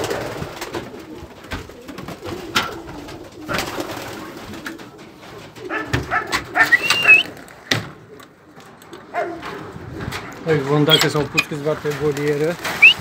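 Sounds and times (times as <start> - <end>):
pigeons cooing: 0.0 - 11.8, 12.6 - 13.0
short high squeak: 6.7 - 7.2, 10.9 - 11.5.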